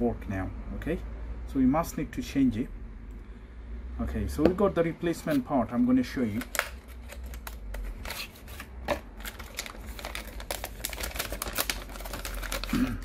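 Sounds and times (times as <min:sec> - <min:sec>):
plastic wrap crinkling: 0:06.1 - 0:13.0.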